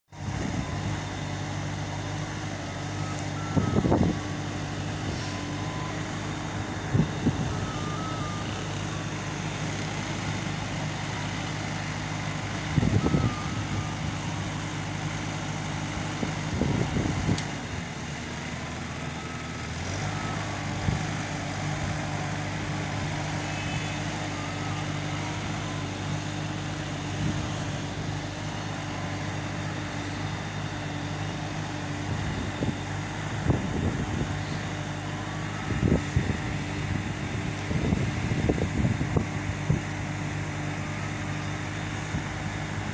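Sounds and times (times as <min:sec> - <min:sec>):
strong wind through trees: 0:00.1 - 0:42.9
low mechanical hum: 0:00.2 - 0:42.9
wind gusts buffeting microphone: 0:35.7 - 0:39.9.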